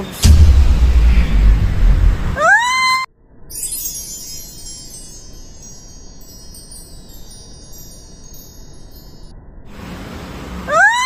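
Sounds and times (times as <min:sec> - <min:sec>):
chimes tinkling: 0:03.5 - 0:09.6.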